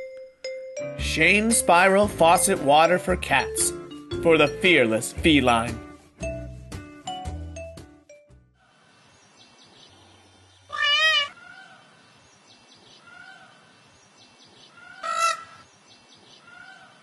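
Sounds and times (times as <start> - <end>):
cat meowing: 10.7 - 11.4.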